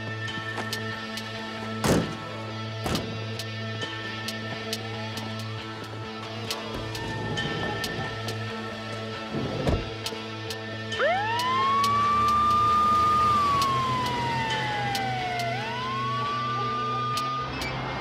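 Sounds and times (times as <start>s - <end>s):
police siren wailing: 6.6s - 8.9s, 10.9s - 18.0s.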